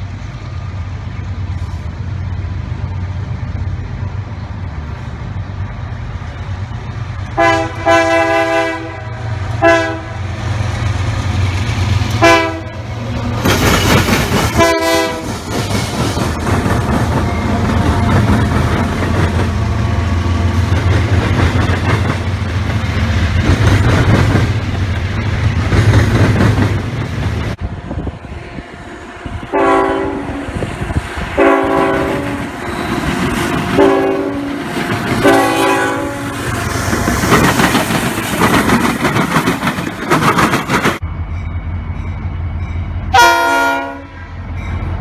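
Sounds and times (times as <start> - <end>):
diesel locomotive engine drone: 0.0 - 45.0
train horn blasts: 7.4 - 10.4, 12.2 - 12.9, 14.6 - 15.4, 28.2 - 32.9, 33.6 - 36.6, 43.1 - 44.4
wheels clattering over rails: 13.2 - 19.8, 20.5 - 27.6, 36.5 - 41.0.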